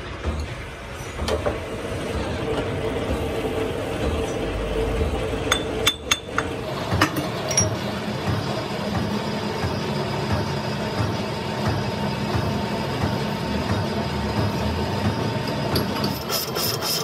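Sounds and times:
steady machine hum: 0.0 - 17.0.

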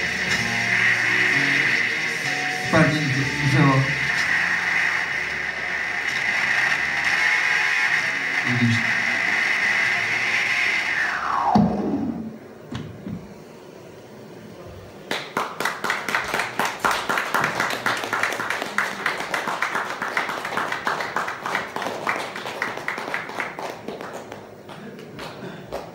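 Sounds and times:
audience applauding: 0.0 - 10.4, 15.1 - 25.9
synthesizer tone gliding down: 0.0 - 12.6.

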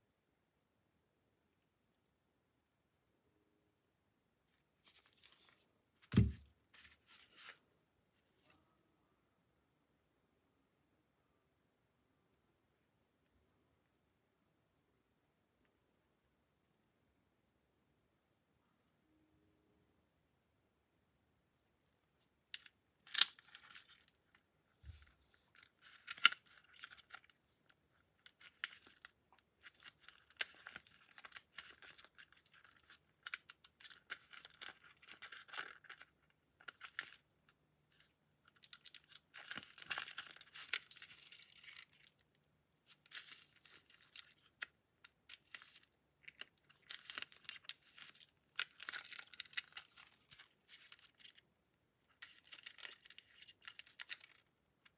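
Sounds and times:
small parts clicking: 22.5 - 24.4, 42.9 - 51.4, 52.2 - 54.9.

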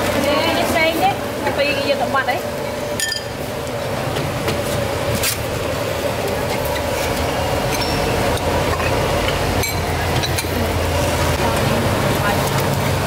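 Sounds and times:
metal utensils clinking on pots: 3.0 - 3.3, 6.7 - 10.8.

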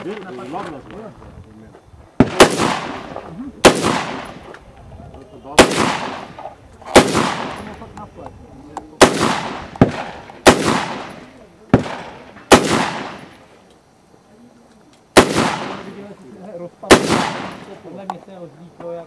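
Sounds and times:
rifle shots with echo: 2.2 - 4.5, 5.6 - 7.9, 9.0 - 13.5, 15.2 - 16.0, 16.8 - 17.9.

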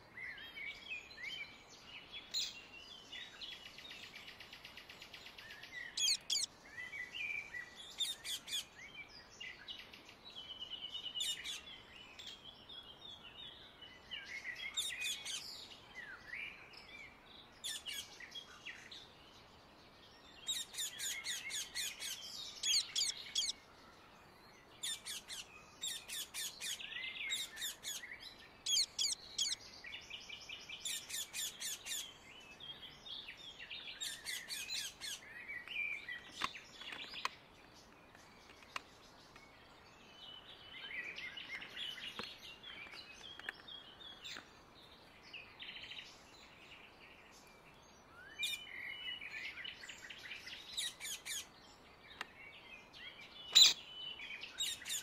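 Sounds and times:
parakeets calling: 6.0 - 6.5, 20.5 - 23.5, 24.8 - 28.0, 28.6 - 29.6, 53.5 - 53.8
parakeets chattering: 20.5 - 23.5, 28.7 - 29.6.

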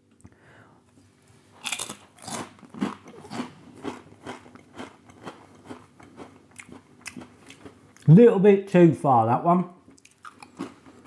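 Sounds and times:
person chewing crunchy crisp: 1.4 - 8.1, 9.9 - 11.0.

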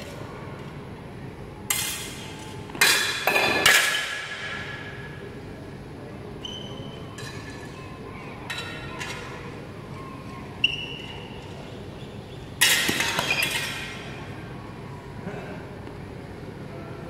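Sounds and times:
swords clashing on metal: 1.7 - 4.5.

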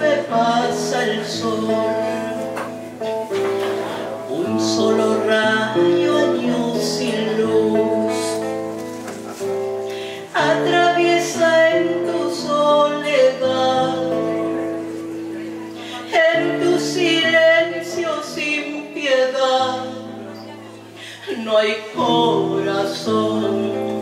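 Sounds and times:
woman singing: 0.0 - 2.6, 4.3 - 8.6, 10.2 - 24.0
guitar accompaniment: 0.0 - 24.0.

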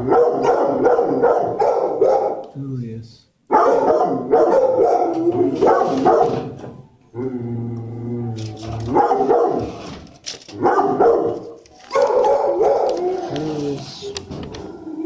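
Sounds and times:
dogs barking loudly: 0.0 - 2.5, 3.5 - 6.6, 8.8 - 13.4.

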